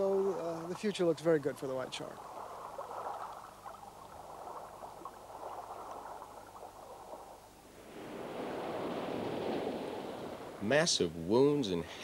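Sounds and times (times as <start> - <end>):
muffled ocean noise: 0.0 - 12.0
surf washing on a beach: 7.8 - 12.0.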